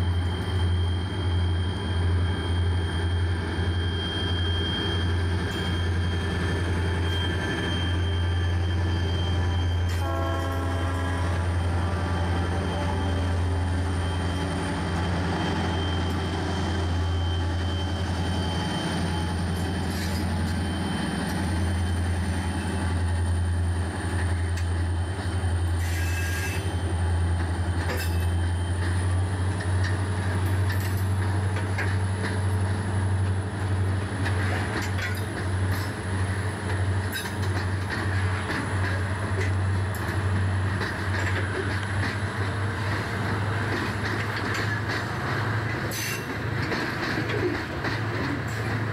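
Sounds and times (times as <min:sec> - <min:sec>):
locomotive engine drone: 0:00.0 - 0:48.9
wheels squealing: 0:11.3 - 0:23.4.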